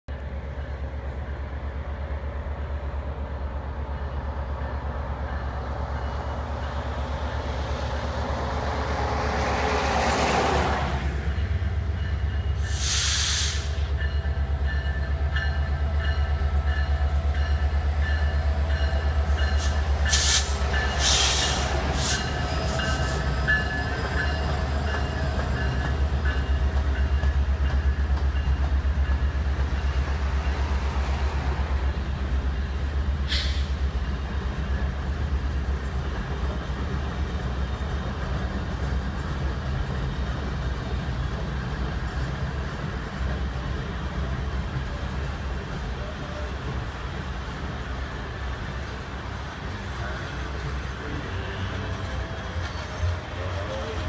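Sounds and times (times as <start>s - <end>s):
diesel locomotive rumble: 0.1s - 54.0s
brief hiss: 12.6s - 13.9s, 19.6s - 22.2s, 33.3s - 33.8s.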